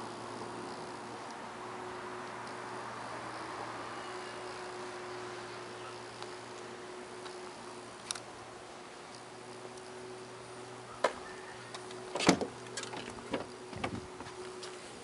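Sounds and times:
faint steady hum: 0.0 - 15.0
car door clicks and knocks: 12.1 - 14.0.

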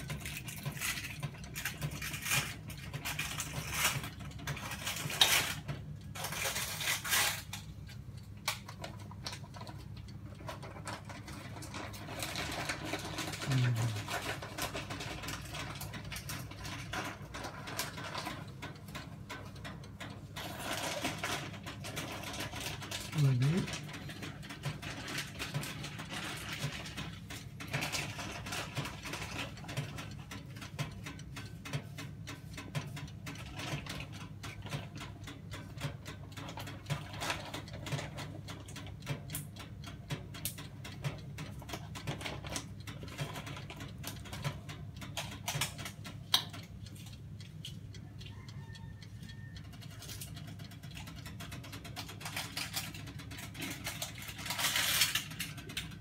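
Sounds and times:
electric oven humming: 0.0 - 56.0.

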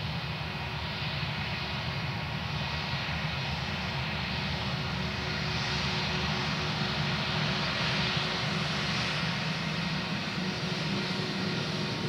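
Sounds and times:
jet engines rumbling with faint whine: 0.0 - 12.0.

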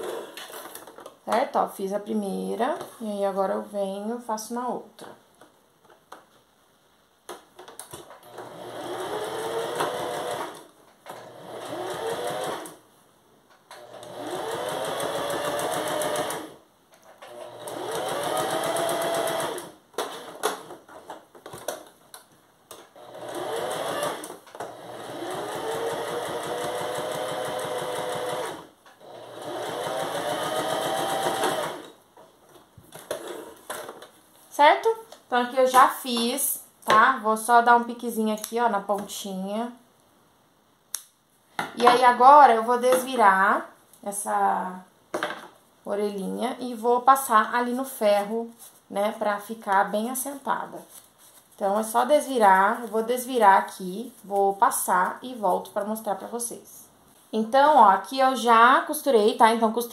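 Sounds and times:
sewing machine motor whine: 23.0 - 31.8.

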